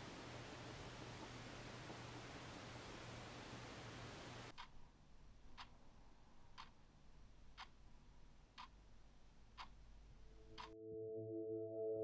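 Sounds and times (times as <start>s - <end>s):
alarm clock ticking: 9.6s - 10.8s.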